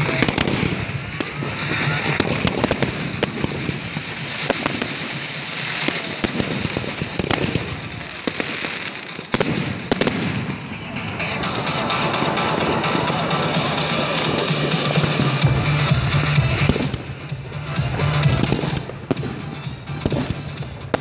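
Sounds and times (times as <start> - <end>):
firework shells bursting: 0.0 - 16.0
fireworks crackling hiss: 0.0 - 21.0.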